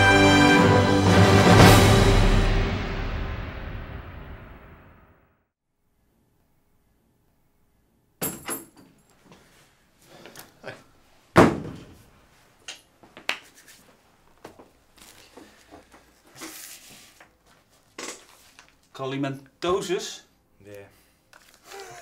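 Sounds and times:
door slamming: 0:11.4 - 0:12.0
papers shuffling: 0:13.4 - 0:18.9, 0:21.3 - 0:22.0.

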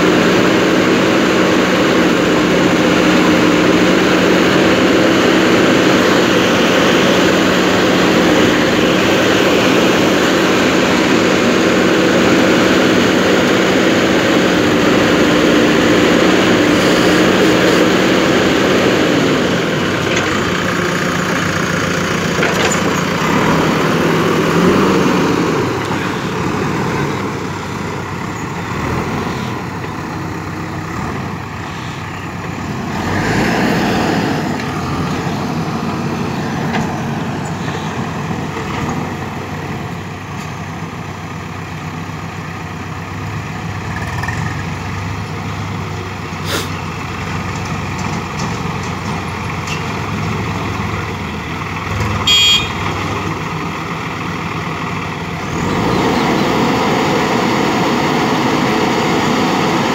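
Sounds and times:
diesel engines running: 0:00.0 - 0:59.9
horn beep: 0:52.2 - 0:52.9.

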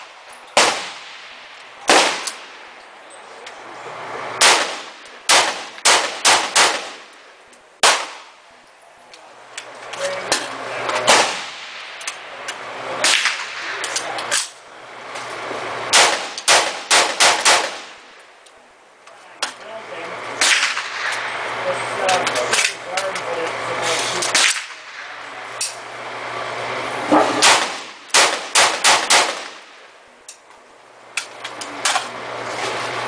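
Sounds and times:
rifle gunshots: 0:00.6 - 0:02.6, 0:04.4 - 0:07.2, 0:07.8 - 0:08.4, 0:11.0 - 0:12.0, 0:13.0 - 0:14.0, 0:15.9 - 0:18.2, 0:20.4 - 0:21.4, 0:24.3 - 0:25.2, 0:27.1 - 0:29.9.

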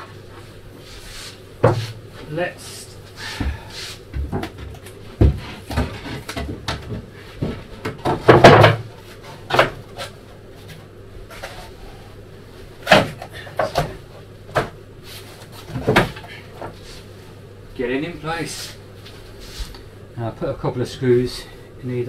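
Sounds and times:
wooden boards knocking: 0:04.2 - 0:08.9.

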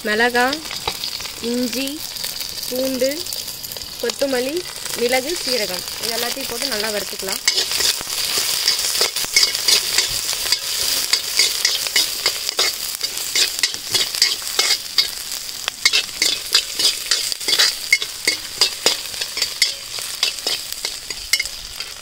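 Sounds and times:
oil sizzling in a pan: 0:00.0 - 0:22.0
metal ladle scraping a pan: 0:06.5 - 0:22.0.

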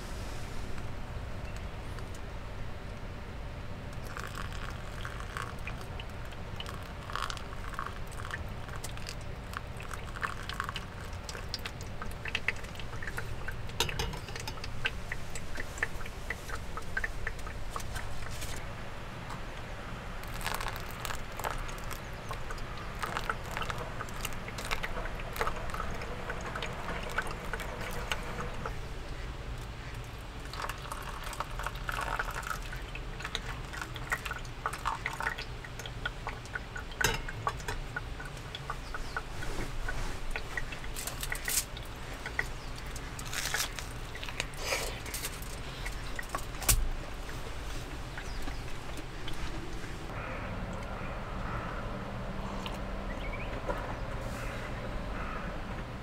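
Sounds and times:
steady low hum: 0:00.0 - 0:56.0
water trickling onto coffee: 0:04.0 - 0:18.6, 0:20.2 - 0:50.1.

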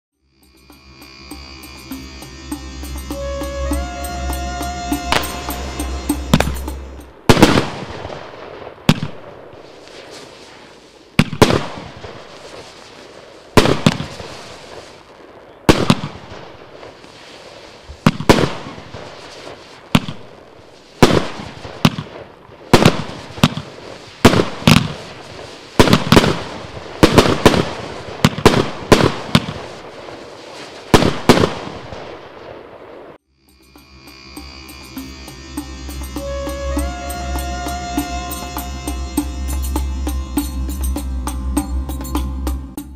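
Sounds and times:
firework cake firing sharp shots: 0:11.2 - 0:12.0, 0:13.6 - 0:14.3, 0:15.7 - 0:16.2, 0:18.0 - 0:18.8, 0:21.0 - 0:25.0, 0:25.8 - 0:29.8, 0:30.9 - 0:31.9.

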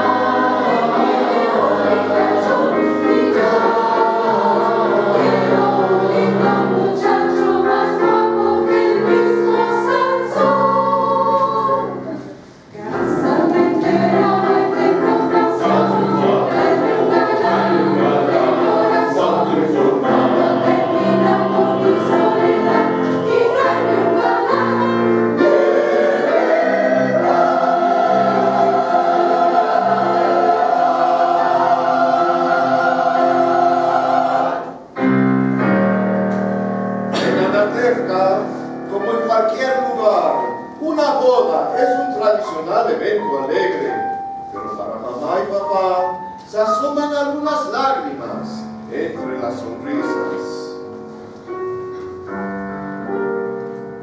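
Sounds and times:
mixed choir singing: 0:00.0 - 0:35.1, 0:37.1 - 0:38.6.

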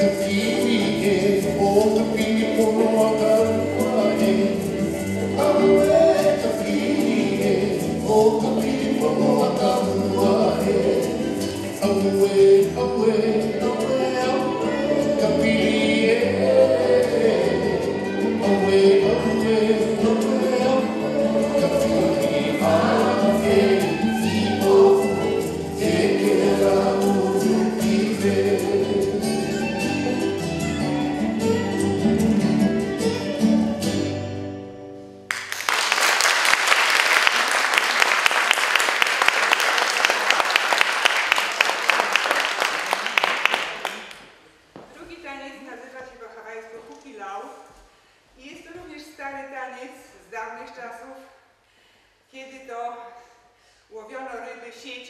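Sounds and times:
song with singing and instruments: 0:00.0 - 0:35.5
audience clapping: 0:35.3 - 0:44.4.

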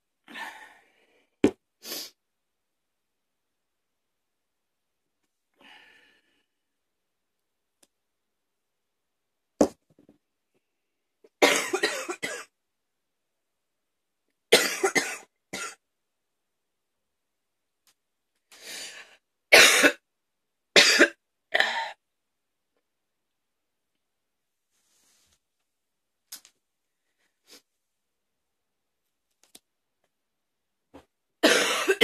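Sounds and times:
woman coughing: 0:11.4 - 0:12.5, 0:14.6 - 0:15.8, 0:19.5 - 0:20.0, 0:20.8 - 0:21.9, 0:31.4 - 0:32.0.

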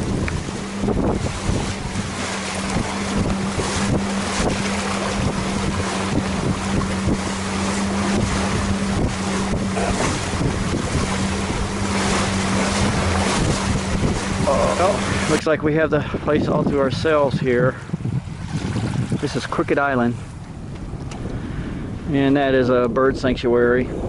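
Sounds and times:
steady low hum: 0:00.0 - 0:18.6
water splashing along hull: 0:00.0 - 0:24.0
wind buffeting microphone: 0:00.0 - 0:24.0.

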